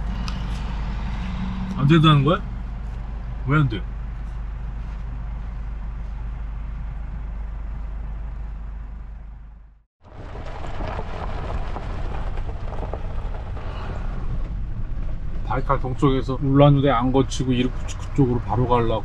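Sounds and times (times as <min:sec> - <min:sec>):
van engine idling: 0:00.0 - 0:19.0
van driving on gravel: 0:10.0 - 0:19.0.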